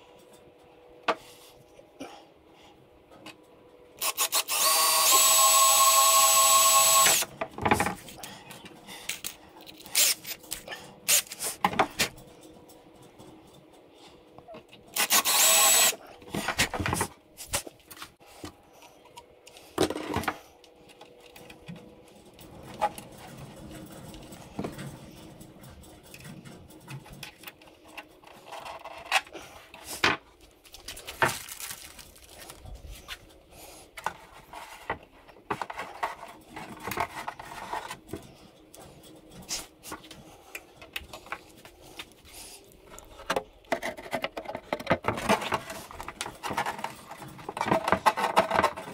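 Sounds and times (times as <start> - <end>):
cordless drill boring: 4.0 - 7.3, 15.0 - 16.0.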